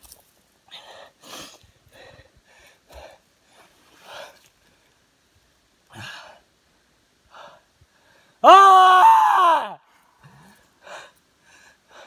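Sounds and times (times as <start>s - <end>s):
man's high pained wail: 8.4s - 9.8s.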